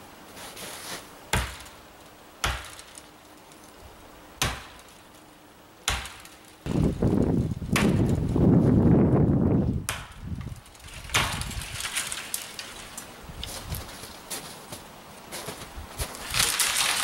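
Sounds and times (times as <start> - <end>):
axe chopping green wood: 1.3 - 1.8, 2.4 - 3.0, 4.4 - 4.9, 5.8 - 6.3, 7.7 - 8.1, 9.9 - 10.2.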